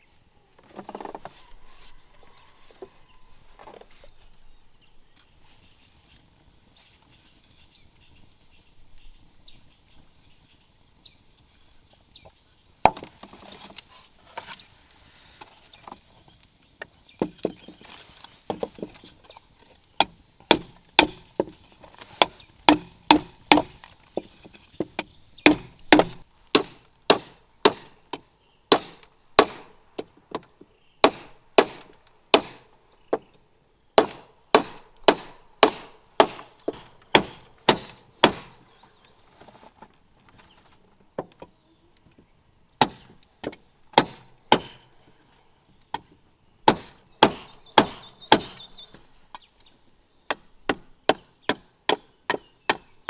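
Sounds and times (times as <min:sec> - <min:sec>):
knife chopping bamboo: 0:20.0 - 0:23.9, 0:24.8 - 0:29.7, 0:31.0 - 0:32.6, 0:34.0 - 0:38.6, 0:42.8 - 0:44.8, 0:46.6 - 0:48.6, 0:50.3 - 0:52.9.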